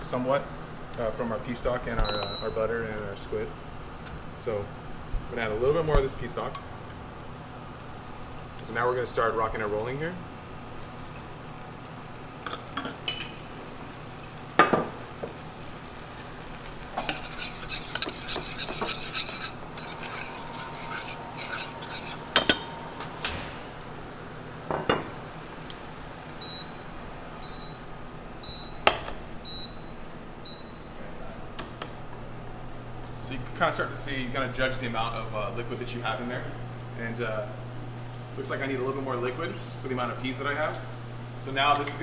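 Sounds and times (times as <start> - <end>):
metal spoon stirring liquid: 17.0 - 22.8.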